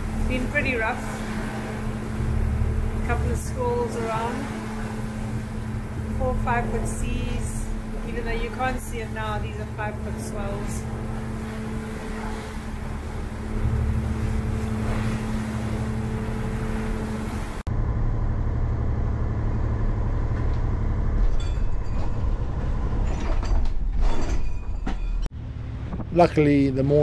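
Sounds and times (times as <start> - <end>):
water and wind hissing: 0.0 - 17.7
diesel engine drone: 0.0 - 21.4, 25.3 - 27.0.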